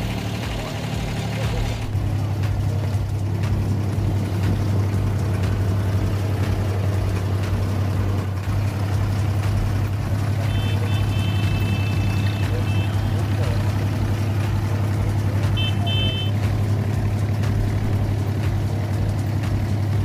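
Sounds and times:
boat diesel engine droning: 0:00.0 - 0:20.0.

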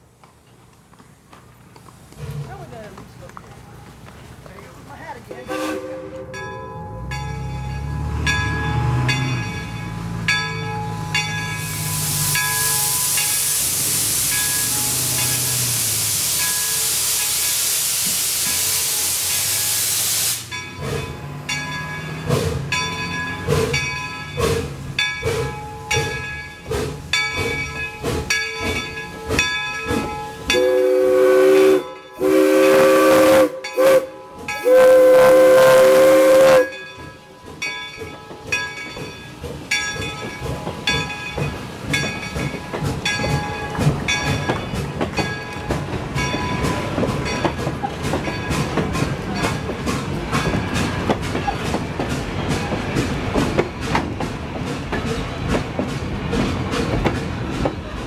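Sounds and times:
steam locomotive exhaust beats: 0:00.1 - 0:58.0
locomotive bell ringing: 0:05.0 - 0:17.6, 0:20.5 - 0:52.8
steam whistle blowing: 0:05.5 - 0:06.3, 0:30.5 - 0:36.8
steam hissing: 0:10.0 - 0:21.4, 0:22.0 - 0:58.0.

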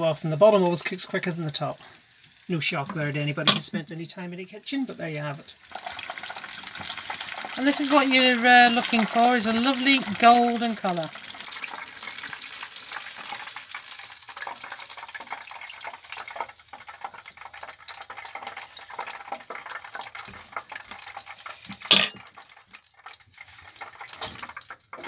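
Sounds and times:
hot fat sizzling and crackling: 0:00.0 - 0:25.0.

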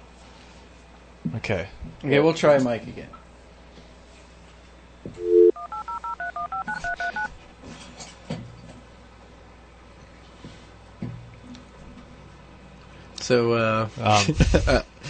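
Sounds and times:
dial tone: 0:05.2 - 0:07.3
touch-tone beeps: 0:05.2 - 0:07.3.

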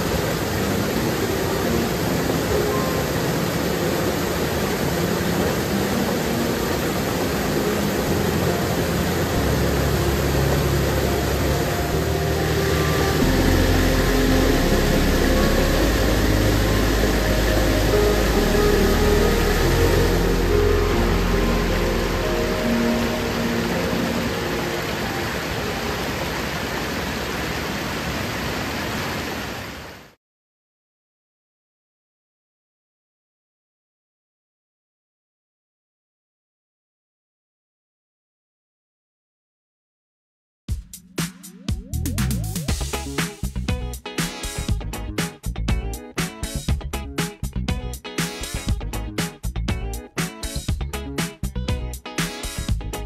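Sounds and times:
stream rushing over boulders: 0:00.0 - 0:30.2.

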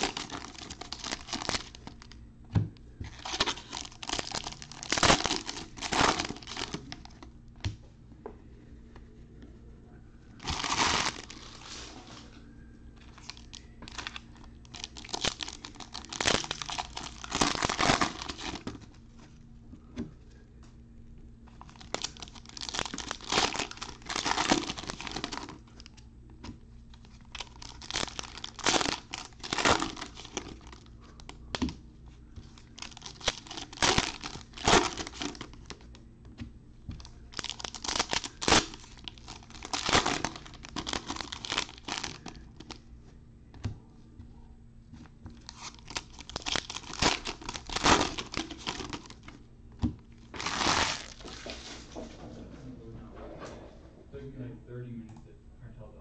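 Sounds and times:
foil wrappers tearing and crinkling: 0:00.0 - 0:02.2, 0:03.1 - 0:07.2, 0:10.4 - 0:11.9, 0:13.0 - 0:18.9, 0:21.6 - 0:26.0, 0:27.0 - 0:30.9, 0:32.5 - 0:35.8, 0:37.3 - 0:42.8, 0:45.4 - 0:49.4, 0:50.2 - 0:51.5.

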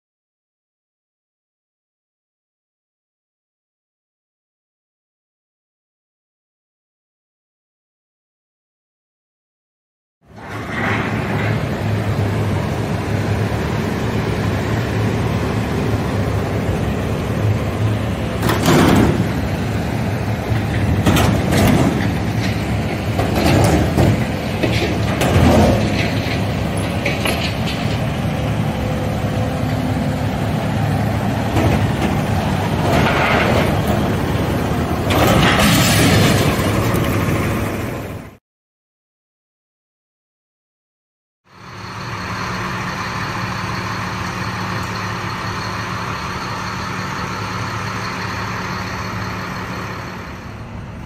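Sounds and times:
excavator diesel engine and hydraulics: 0:10.2 - 0:38.4, 0:41.5 - 0:51.0
metallic scrapes and clanks: 0:10.4 - 0:12.0.

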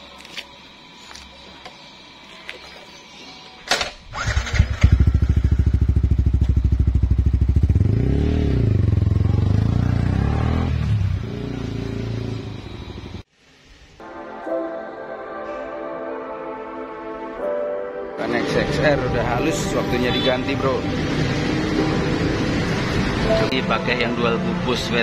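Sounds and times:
motorcycle engine running and revving: 0:04.1 - 0:13.2, 0:20.9 - 0:23.5.

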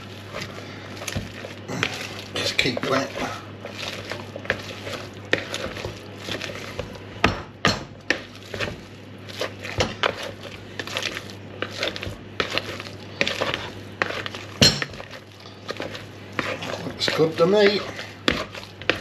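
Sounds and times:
potato masher knocking in bowl: 0:15.8 - 0:19.0.

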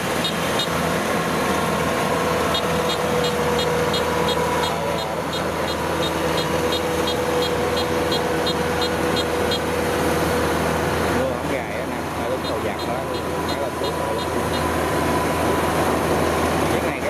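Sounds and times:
combine harvester engine drone: 0:00.0 - 0:17.0.

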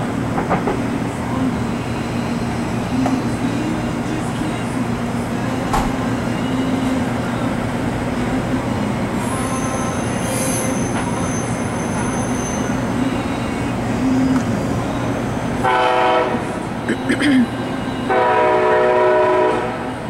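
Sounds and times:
train wheels rumbling on rail: 0:00.0 - 0:20.0
high-pitched wheel squeal: 0:09.2 - 0:13.4.

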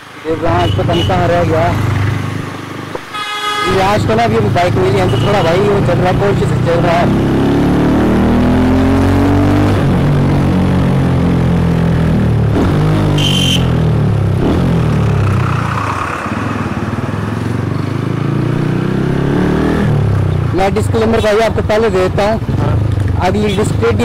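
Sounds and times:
horn beep: 0:03.1 - 0:04.0, 0:04.9 - 0:05.7, 0:13.1 - 0:13.9
motorcycle engine accelerating: 0:03.7 - 0:23.2.

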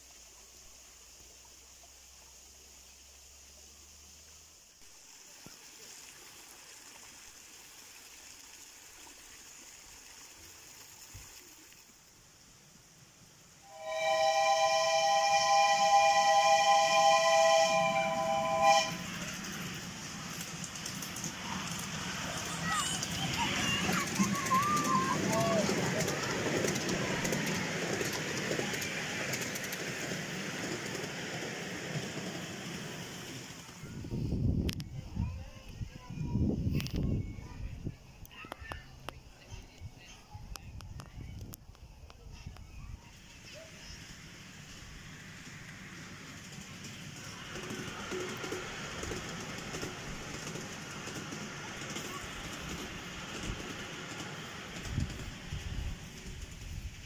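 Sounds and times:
waterfall splashing over stones: 0:00.0 - 0:13.0
miniature train wheels rumbling: 0:12.7 - 0:57.0
light clicks of wheels: 0:38.2 - 0:42.7.

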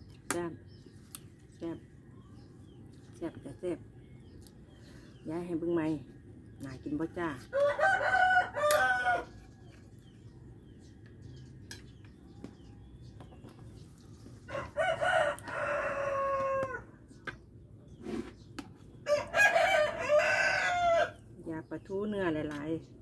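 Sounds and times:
rooster crowing: 0:07.6 - 0:09.4, 0:14.5 - 0:16.9, 0:19.0 - 0:21.2.

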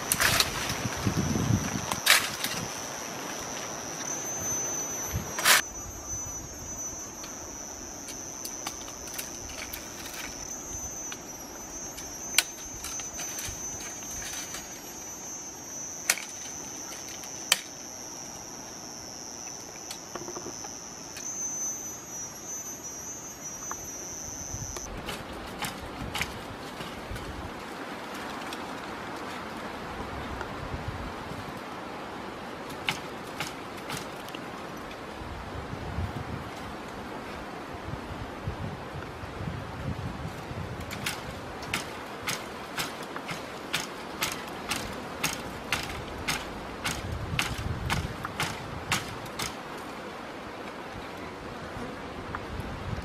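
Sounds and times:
insects singing: 0:00.0 - 0:24.9.

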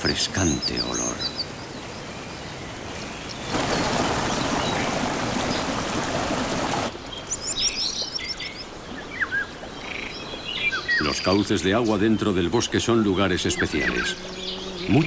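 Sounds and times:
birds chirping: 0:00.0 - 0:15.0
stream water rushing over rocks: 0:03.4 - 0:07.1.

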